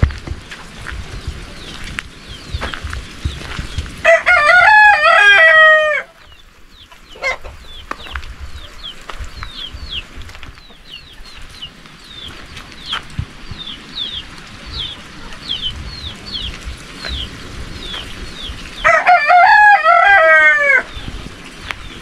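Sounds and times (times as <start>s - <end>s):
small bird chirping: 0.4s - 4.0s, 6.2s - 18.8s
rooster crowing: 4.0s - 6.2s, 18.8s - 21.0s.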